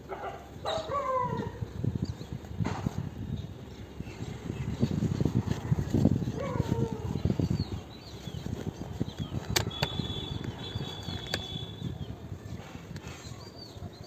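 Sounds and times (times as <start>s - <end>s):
rumbling and crackling on microphone: 0.0s - 14.0s
sharp clicks: 9.2s - 11.5s.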